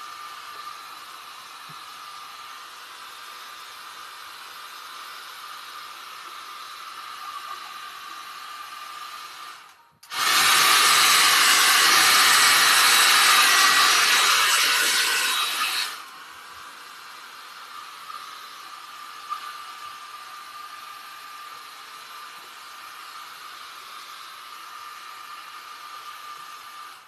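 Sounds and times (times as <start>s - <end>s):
small blower running: 0.0s - 27.0s.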